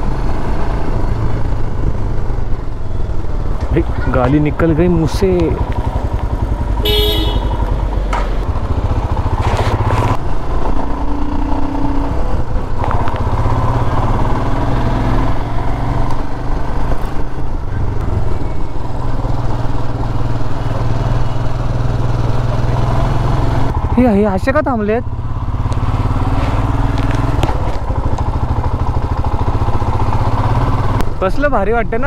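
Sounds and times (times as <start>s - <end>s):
motorcycle engine running: 0.0s - 32.0s
horn beep: 6.8s - 7.6s.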